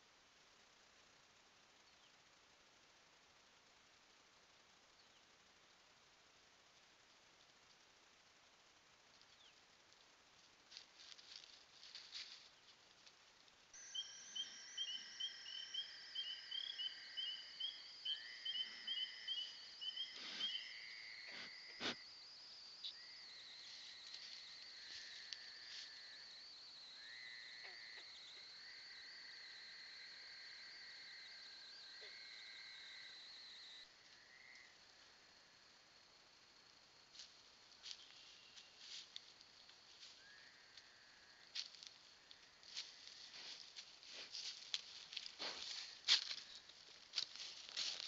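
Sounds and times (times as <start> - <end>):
insects high whine: 0.0 - 48.0
faint rustling and ticking: 9.0 - 13.8.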